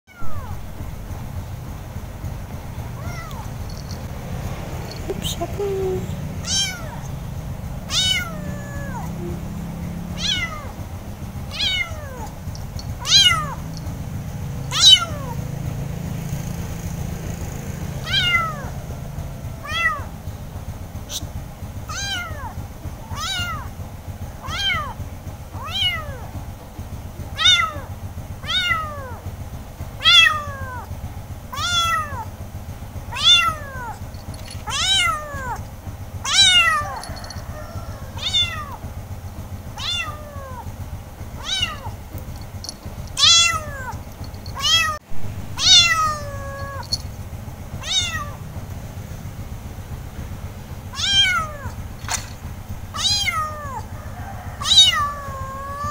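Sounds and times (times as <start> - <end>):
kitten meowing: 2.9 - 4.1, 4.9 - 7.2, 7.9 - 10.8, 11.5 - 13.8, 14.7 - 15.4, 18.0 - 18.8, 19.6 - 20.1, 21.9 - 23.7, 24.4 - 25.0, 25.6 - 26.3, 27.4 - 29.2, 30.0 - 30.9, 31.5 - 32.3, 33.1 - 34.0, 34.6 - 35.6, 36.2 - 38.8, 39.8 - 40.7, 41.4 - 42.0, 43.2 - 47.1, 47.8 - 48.4, 50.9 - 51.8, 52.9 - 53.9, 54.6 - 55.9.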